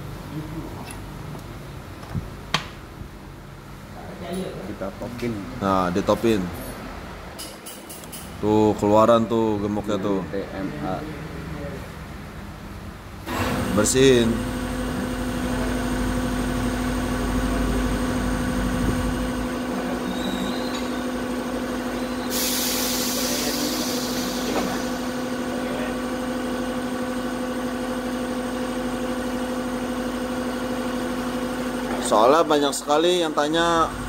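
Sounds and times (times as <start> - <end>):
mechanical hum: 0.0 - 34.0
hiss of air: 22.2 - 25.2.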